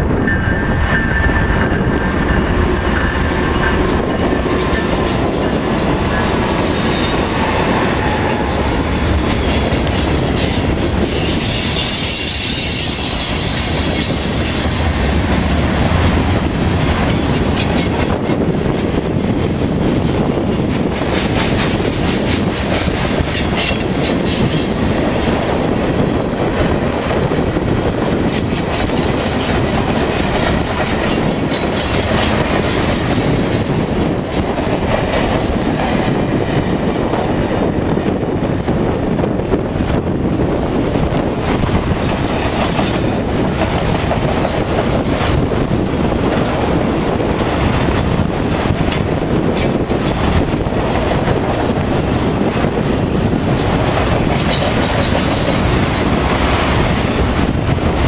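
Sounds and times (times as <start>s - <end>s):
diesel freight train passing: 0.0s - 58.0s
wheels clacking over rail joints: 2.6s - 19.2s, 20.5s - 25.1s, 28.0s - 36.1s, 47.9s - 57.3s
high wheel squeal: 9.5s - 14.7s.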